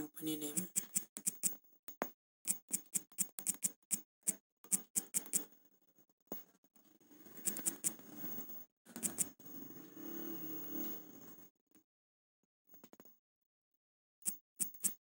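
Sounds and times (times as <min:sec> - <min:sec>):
on-screen keyboard typing clicks: 0:00.5 - 0:01.6, 0:02.5 - 0:05.5, 0:07.3 - 0:08.0, 0:08.9 - 0:09.3.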